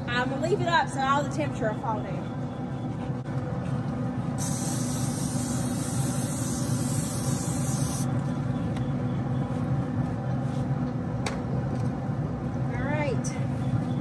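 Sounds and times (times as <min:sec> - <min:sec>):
aerosol spray hissing: 0:04.4 - 0:08.1.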